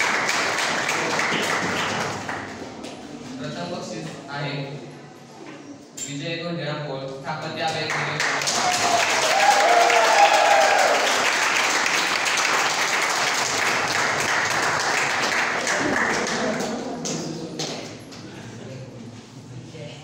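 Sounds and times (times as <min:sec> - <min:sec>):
crowd applauding: 0:00.0 - 0:02.7, 0:07.9 - 0:17.9
person cheering: 0:08.5 - 0:11.1.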